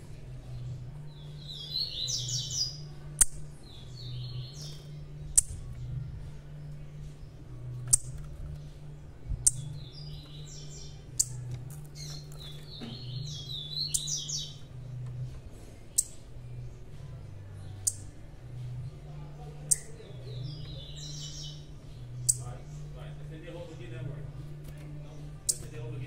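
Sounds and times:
small songbirds chirping: 0:00.0 - 0:26.0
steady low hum: 0:00.0 - 0:26.0.

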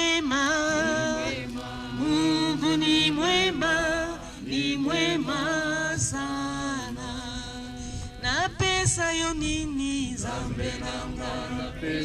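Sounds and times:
voices singing a slow hymn: 0:00.0 - 0:12.0.

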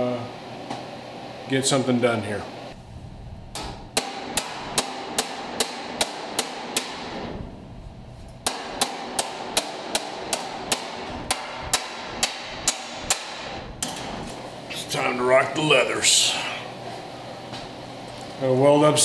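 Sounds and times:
hammer striking chisel on steel: 0:03.6 - 0:07.2, 0:08.4 - 0:14.1.

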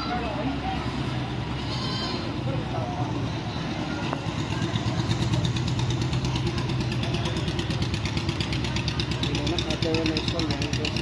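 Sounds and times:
engine idling: 0:02.3 - 0:11.0.

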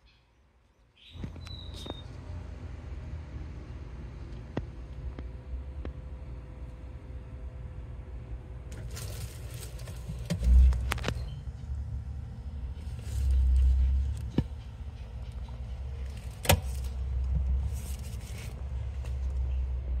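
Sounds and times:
camera handling rumble: 0:08.8 - 0:11.3.

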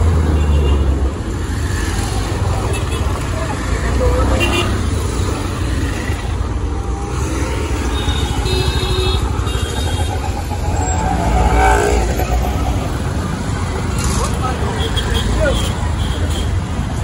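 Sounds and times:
engine and road rumble: 0:00.0 - 0:17.0
vehicle passing: 0:09.9 - 0:14.7.

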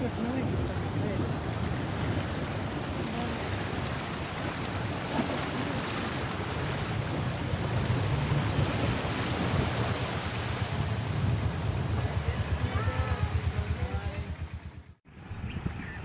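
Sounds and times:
river water rushing: 0:00.0 - 0:15.2
wind buffeting microphone: 0:00.0 - 0:16.0
low rumble: 0:06.4 - 0:15.8.

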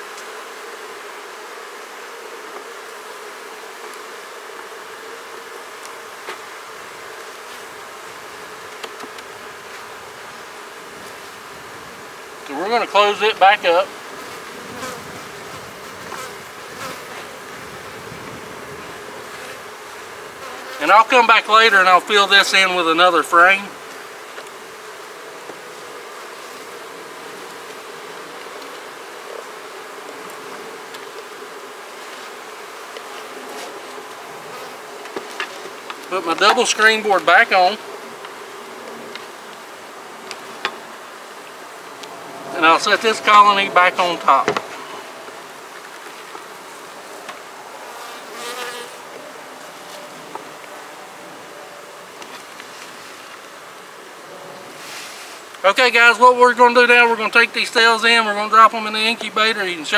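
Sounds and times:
faint ticks of hive parts: 0:00.0 - 0:12.6, 0:13.9 - 0:17.5, 0:23.8 - 0:42.2
bees buzzing: 0:00.0 - 0:59.9
honeybees humming: 0:00.0 - 0:59.9
hive frames clicking: 0:08.6 - 0:09.4.

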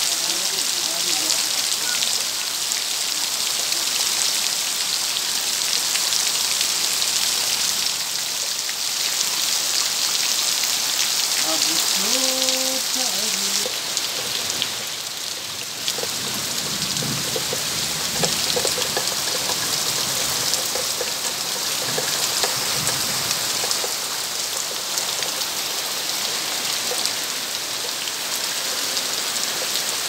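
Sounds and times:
heavy rain pouring: 0:00.0 - 0:30.0.

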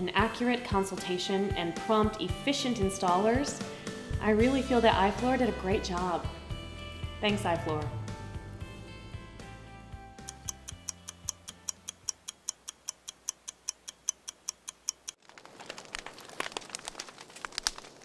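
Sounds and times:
background music: 0:00.0 - 0:12.4
clock ticking: 0:10.2 - 0:15.2.

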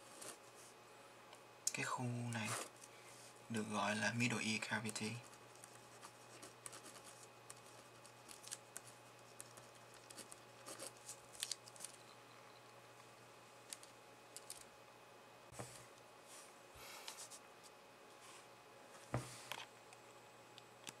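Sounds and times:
pen scratching on paper: 0:05.2 - 0:08.1
soft knocks on wooden desk: 0:19.1 - 0:19.3.

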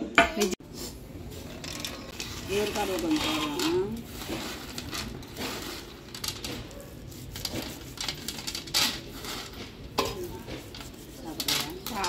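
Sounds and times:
metal utensils clinking: 0:01.4 - 0:06.8.

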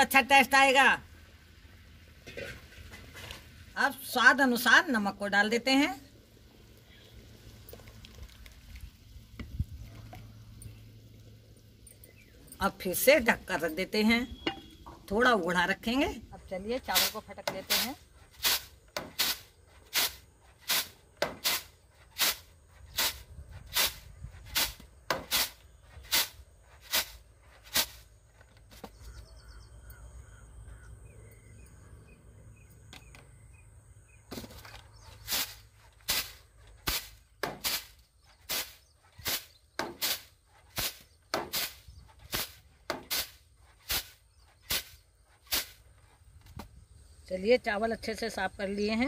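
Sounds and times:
rice tossed in winnowing tray: 0:16.9 - 0:28.0, 0:35.1 - 0:45.8.

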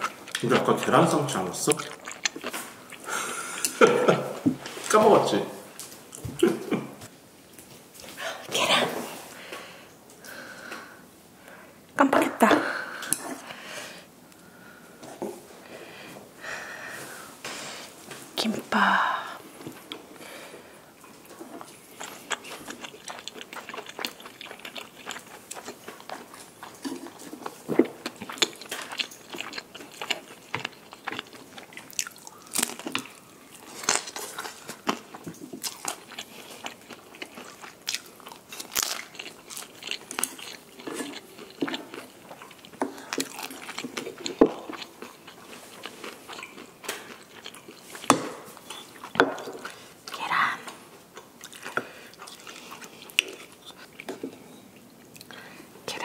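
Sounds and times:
crunchy chewing: 0:00.0 - 0:03.8, 0:21.0 - 0:55.4.

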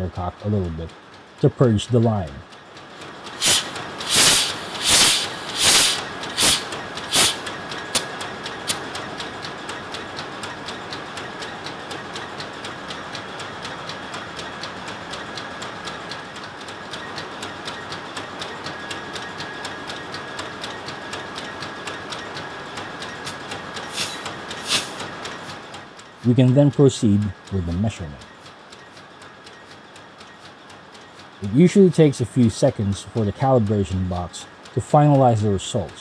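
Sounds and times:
engine room hum: 0:00.0 - 0:36.0
engine room ticking: 0:00.0 - 0:36.0
gas hissing puffs: 0:03.3 - 0:08.8, 0:23.2 - 0:25.6.

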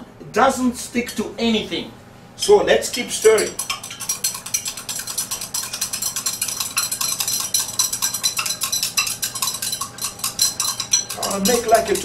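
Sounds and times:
stirrers clinking on beakers: 0:02.8 - 0:12.0.

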